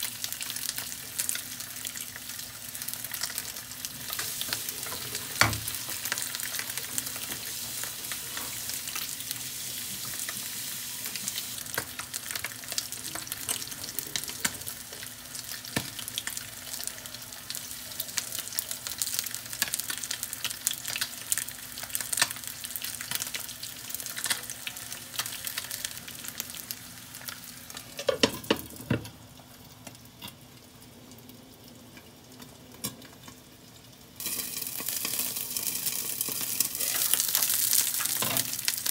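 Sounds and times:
fish sizzling in hot oil: 0.0 - 38.9.

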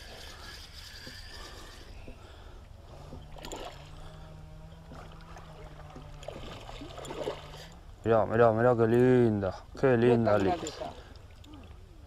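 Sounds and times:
low hum: 0.0 - 12.0
fish splashing in water: 3.2 - 7.8.

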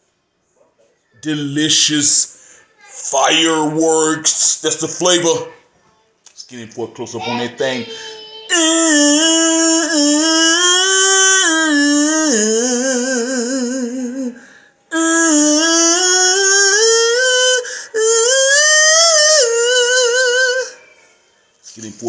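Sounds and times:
man singing held notes: 7.2 - 20.8.

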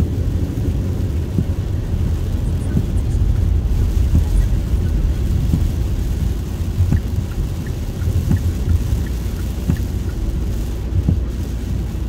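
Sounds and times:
rain ticking on windshield: 0.0 - 12.0
tyres rumbling on wet road: 0.0 - 12.0
windshield wipers knocking: 0.8 - 12.0.

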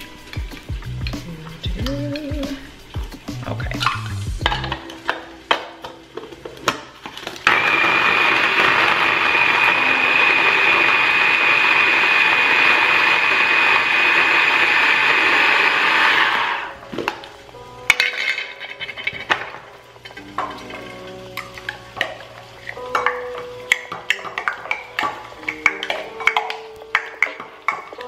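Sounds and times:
electric food chopper whining: 7.2 - 16.8.

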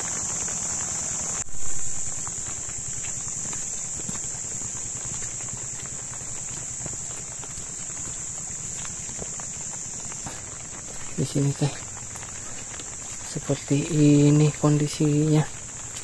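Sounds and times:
insects droning: 0.0 - 16.0.

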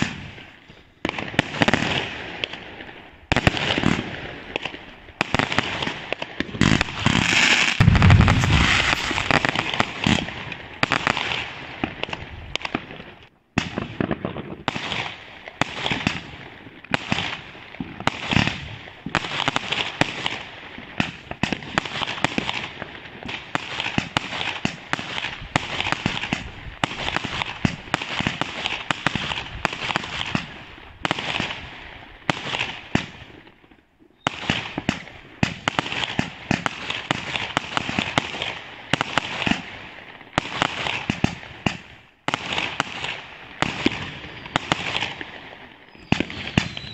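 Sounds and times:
fireworks bangs: 0.0 - 13.0, 34.2 - 46.9
fireworks crackling: 0.0 - 33.6, 34.2 - 46.9.

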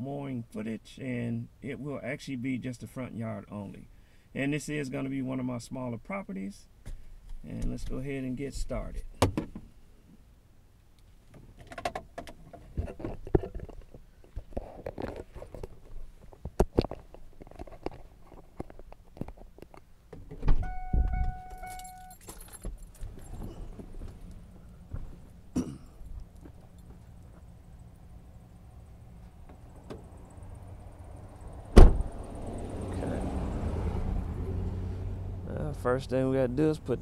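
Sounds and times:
rattling handling noise: 11.3 - 24.4
low steady hum: 20.5 - 33.0
truck warning chime dinging: 20.6 - 22.3
heavy thump: 31.8 - 32.2.

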